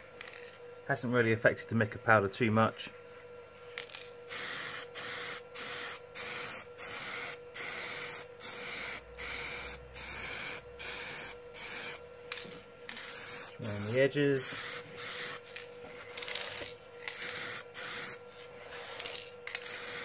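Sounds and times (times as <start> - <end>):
aerosol can spraying in bursts: 4.3 - 12.0, 12.9 - 15.4, 17.1 - 20.0.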